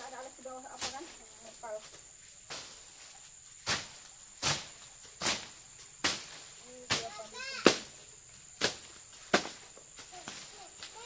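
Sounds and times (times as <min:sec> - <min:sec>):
sharp hand tool strikes: 0:03.7 - 0:07.9, 0:08.6 - 0:09.6.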